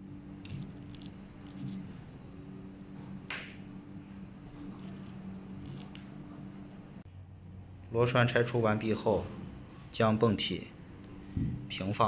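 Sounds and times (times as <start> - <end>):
steady low hum: 0.0 - 12.0
metal tools clinking on wood: 0.4 - 1.9, 4.8 - 6.2.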